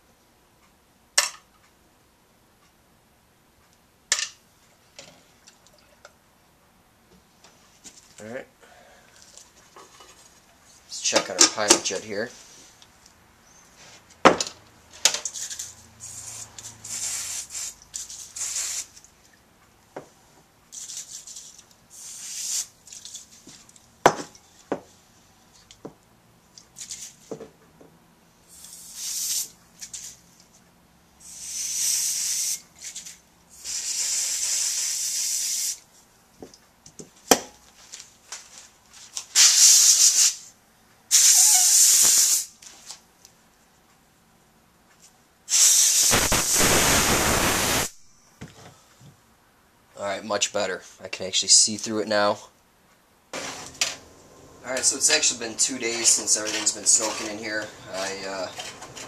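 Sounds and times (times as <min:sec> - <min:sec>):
compressed air blow gun hissing: 0:16.0 - 0:18.9, 0:21.9 - 0:22.7, 0:28.5 - 0:29.5, 0:31.2 - 0:32.6, 0:33.5 - 0:35.8, 0:41.1 - 0:42.5, 0:45.5 - 0:48.0.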